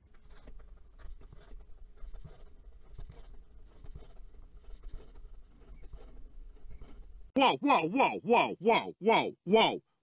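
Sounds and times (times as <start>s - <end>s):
pen writing on paper: 0.1s - 7.1s.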